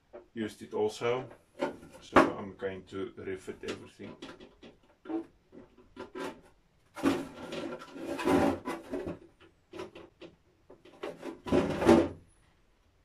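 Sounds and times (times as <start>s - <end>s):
plastic lid rubbing and scraping: 1.3s - 2.3s, 3.6s - 12.2s.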